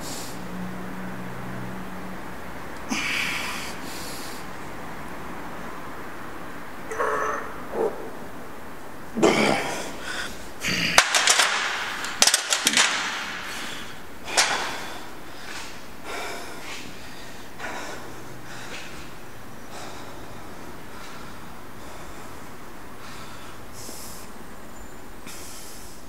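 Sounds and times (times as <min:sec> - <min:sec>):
man breathing forcefully: 0:00.0 - 0:00.5, 0:02.8 - 0:04.7, 0:09.2 - 0:24.4, 0:25.2 - 0:26.0.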